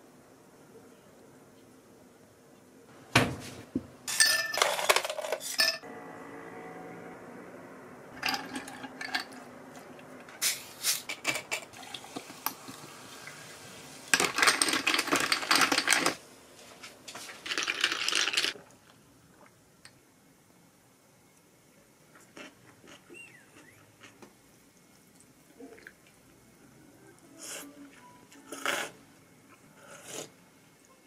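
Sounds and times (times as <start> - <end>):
dishes and glassware clinking: 4.1 - 5.8.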